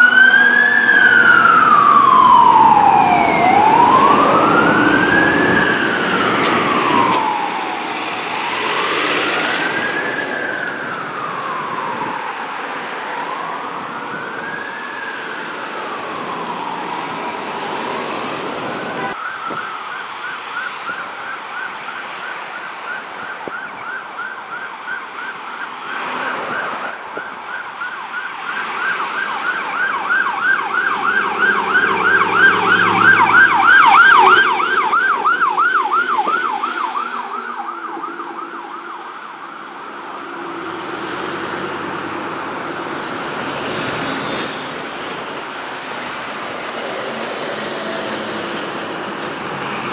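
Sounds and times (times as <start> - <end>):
electronic siren wailing and yelping: 0.0 - 17.9, 26.5 - 39.2.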